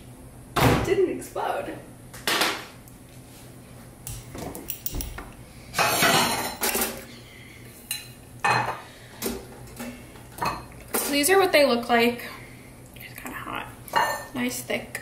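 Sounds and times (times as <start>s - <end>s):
dishes and cutlery clattering: 5.8s - 7.0s.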